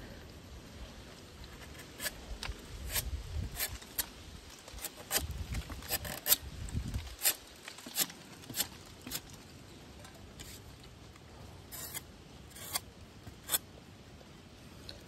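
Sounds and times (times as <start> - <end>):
knife slicing plant stem: 2.8 - 4.1, 4.7 - 6.4.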